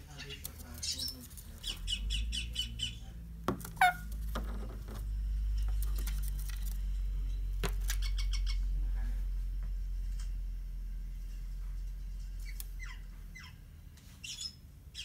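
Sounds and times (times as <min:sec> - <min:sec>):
low steady hum: 0:00.0 - 0:15.0
parakeet chirping: 0:00.1 - 0:04.2, 0:07.9 - 0:08.7, 0:12.4 - 0:13.6, 0:14.2 - 0:15.0.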